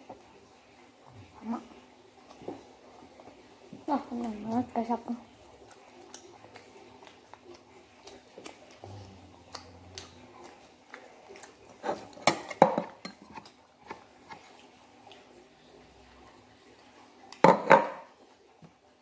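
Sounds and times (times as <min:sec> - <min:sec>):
chewing: 0:00.0 - 0:17.4
plastic bowls clattering: 0:11.9 - 0:13.4.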